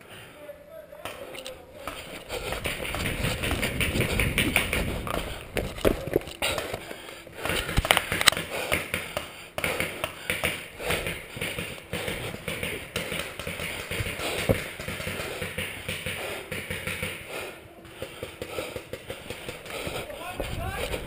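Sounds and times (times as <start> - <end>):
paintball markers shooting: 1.0 - 21.0
balls striking wooden cover: 1.8 - 21.0.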